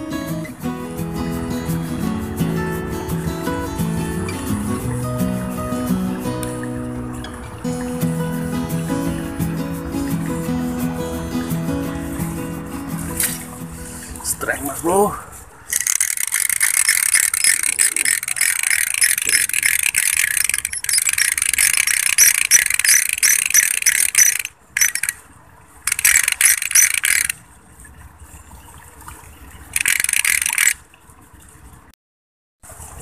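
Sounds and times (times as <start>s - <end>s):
fishing reel clicking and ratcheting: 15.7s - 25.2s, 25.9s - 27.4s, 29.8s - 30.8s.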